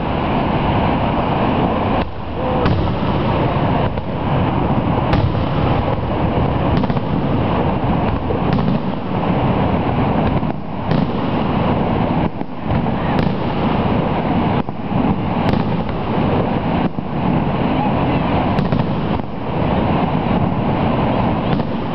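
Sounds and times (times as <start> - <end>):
fireworks bursting: 0.0 - 21.9
loud rushing noise: 0.0 - 21.9.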